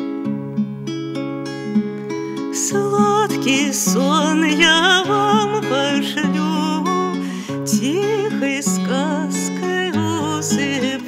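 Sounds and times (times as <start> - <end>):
acoustic guitar: 0.0 - 11.0
woman singing with vibrato: 2.5 - 11.0.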